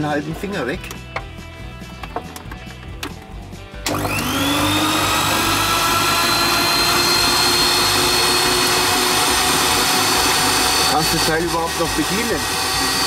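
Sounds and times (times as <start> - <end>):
food slicer motor whine: 3.8 - 13.0.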